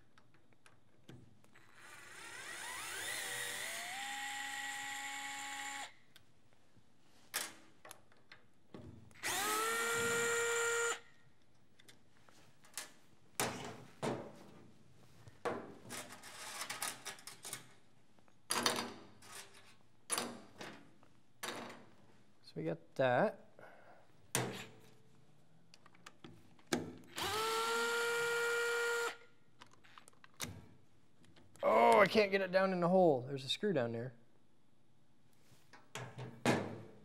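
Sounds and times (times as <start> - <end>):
power screwdriver whining: 1.6 - 5.9, 9.2 - 11.0, 27.2 - 29.2.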